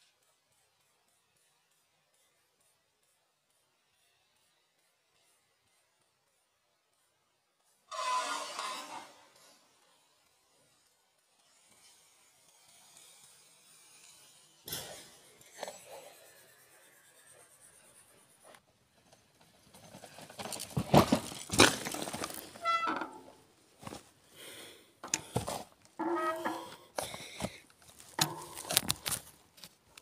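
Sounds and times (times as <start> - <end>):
bump: 20.6 - 24.0, 25.3 - 26.8
phone handling rustling: 27.8 - 29.7.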